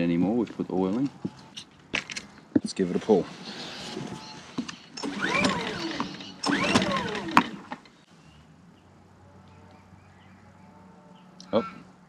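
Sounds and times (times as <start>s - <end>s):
generator recoil starter pulled: 3.6s - 8.0s.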